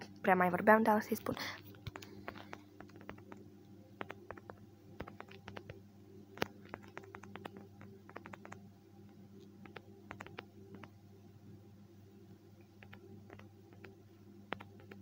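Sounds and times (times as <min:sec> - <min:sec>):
steady low hum: 0:00.0 - 0:15.0
typing on phone screen: 0:01.9 - 0:03.4, 0:04.0 - 0:05.8, 0:06.4 - 0:08.6, 0:09.6 - 0:10.9, 0:12.8 - 0:15.0.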